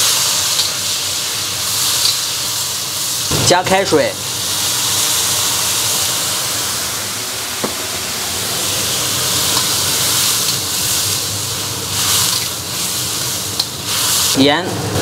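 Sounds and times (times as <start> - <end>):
water sizzling in a hot wok: 0.0 - 15.0
metal spatula scraping wok: 9.4 - 14.4.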